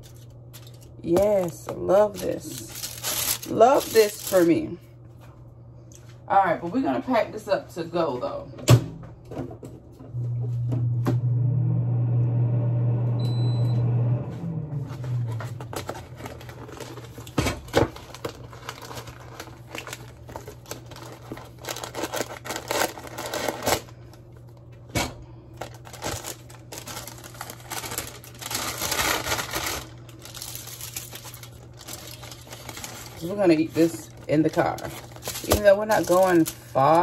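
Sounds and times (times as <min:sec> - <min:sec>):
paper and cardboard rustling: 0:00.0 - 0:04.6, 0:14.9 - 0:24.0, 0:25.6 - 0:37.0
low electric hum: 0:00.0 - 0:37.0.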